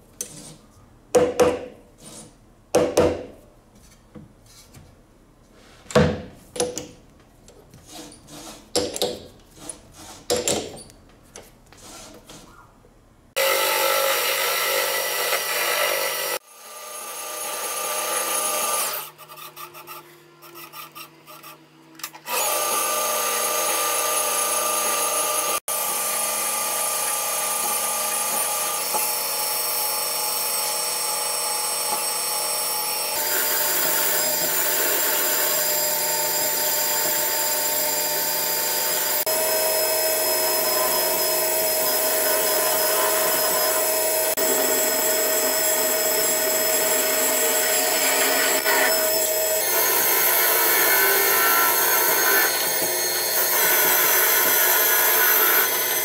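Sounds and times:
metal lathe whining: 22.3 - 56.0.

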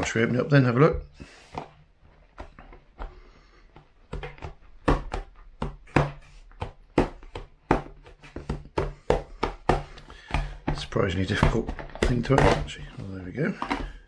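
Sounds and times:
case clicks and knocks on desk: 4.1 - 14.0.

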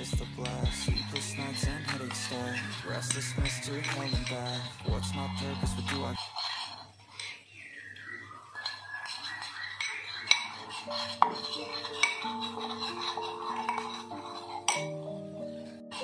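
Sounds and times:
background music with held notes: 0.0 - 6.2, 10.2 - 16.0
metal spoon scraping ceramic bowl: 8.6 - 14.9.

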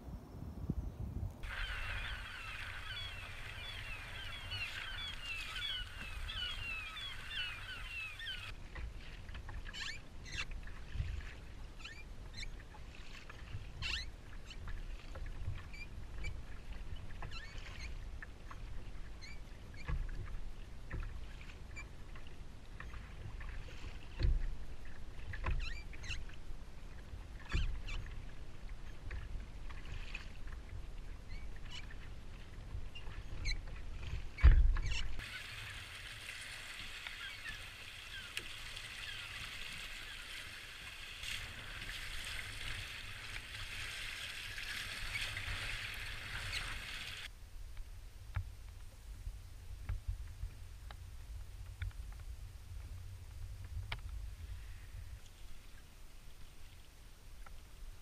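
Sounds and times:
wind rumbling on microphone: 0.0 - 58.0
water splashing against kayak hull: 1.3 - 58.0.

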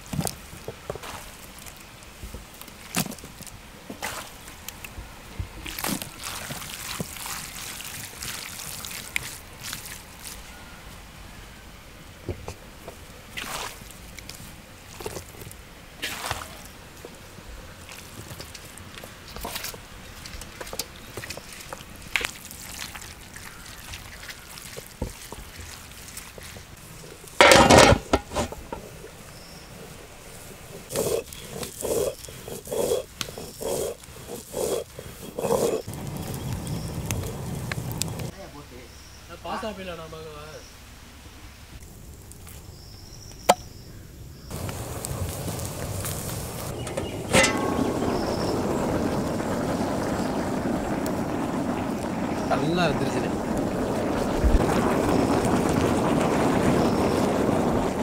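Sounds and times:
metal lid clattering on pot: 27.4 - 28.8, 46.8 - 48.3.

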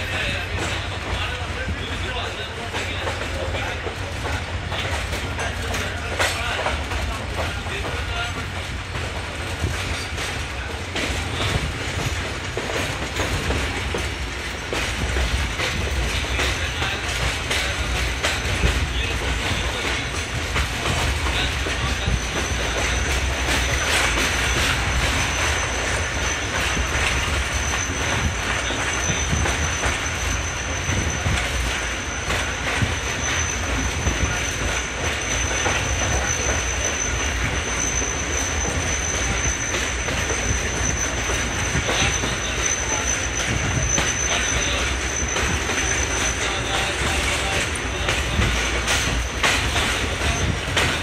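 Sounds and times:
train rumbling and wheels clattering: 0.0 - 51.0
high wheel squeal: 14.6 - 51.0.

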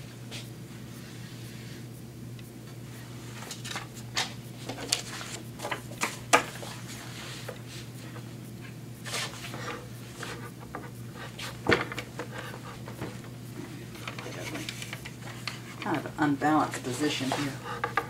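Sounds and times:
steady low hum: 0.0 - 18.0
paper rustling: 3.3 - 7.5, 14.0 - 16.1.

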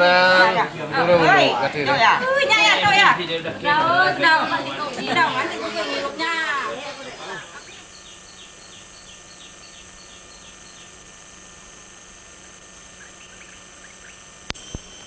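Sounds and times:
steady hiss: 0.0 - 15.0
high-pitched chirps: 7.1 - 11.0.

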